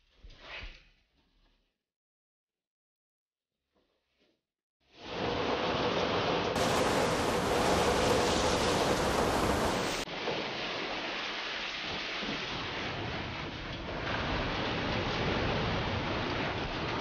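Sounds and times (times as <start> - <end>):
water gushing and splashing: 5.1 - 17.0
rain falling on rock: 6.5 - 17.0.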